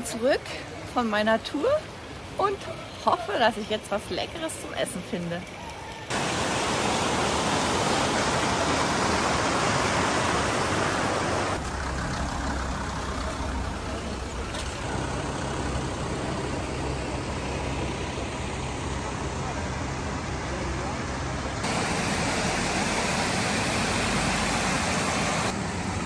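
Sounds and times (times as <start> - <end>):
river rushing over rocks: 6.1 - 11.6.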